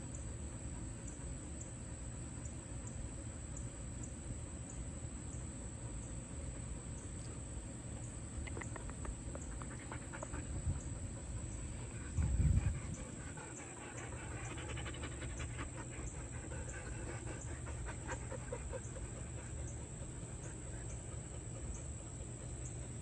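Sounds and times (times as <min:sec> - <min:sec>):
low steady rumble: 0:00.0 - 0:23.0
dog panting: 0:08.7 - 0:23.0.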